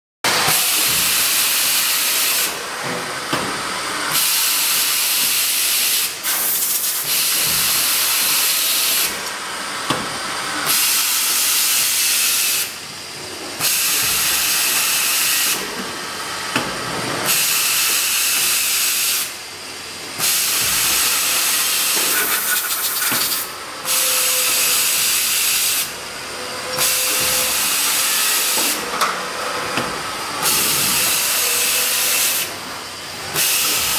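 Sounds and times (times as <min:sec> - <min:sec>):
tapping machine hissing: 0:04.2 - 0:09.4, 0:20.2 - 0:26.0, 0:26.6 - 0:29.1, 0:29.7 - 0:32.5.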